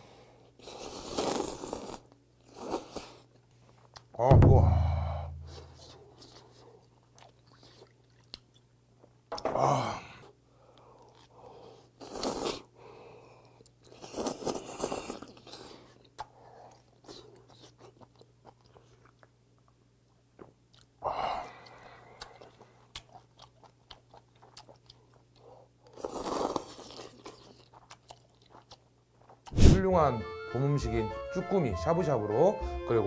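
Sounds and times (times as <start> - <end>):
slurping noodles: 0.6 - 3.2, 26.0 - 27.2
wet chewing: 5.6 - 8.7, 21.6 - 29.6.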